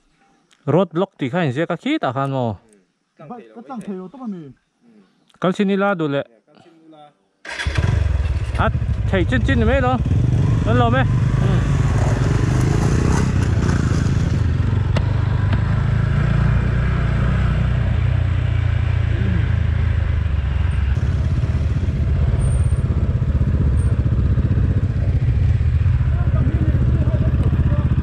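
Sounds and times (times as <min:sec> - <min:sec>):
motorcycle engine running: 0:07.6 - 0:28.0.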